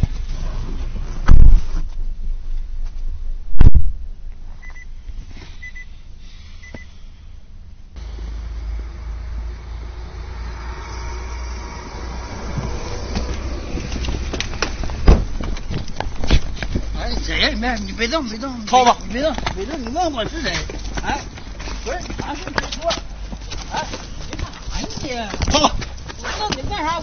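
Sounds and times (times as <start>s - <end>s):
steady low rumble: 0.0s - 27.0s
car driving at low speed: 7.6s - 22.4s
loud knocks: 14.1s - 16.8s.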